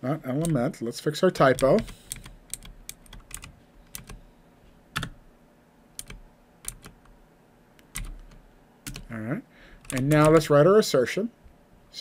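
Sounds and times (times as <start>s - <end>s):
computer keyboard keystrokes: 1.4s - 4.2s, 5.0s - 5.2s, 6.0s - 7.2s, 7.8s - 9.1s, 9.8s - 10.5s.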